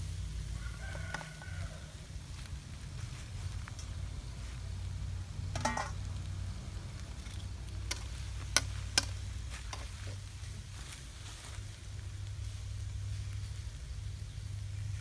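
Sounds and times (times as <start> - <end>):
metal spoon clinking on wok: 5.5 - 6.0.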